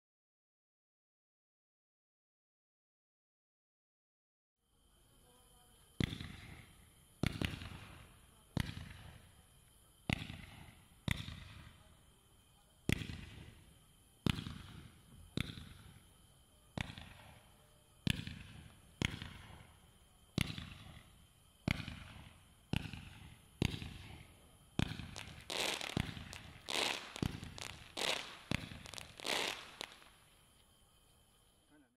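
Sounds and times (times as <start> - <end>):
firework cake shots: 12.8 - 16.0, 20.4 - 30.2.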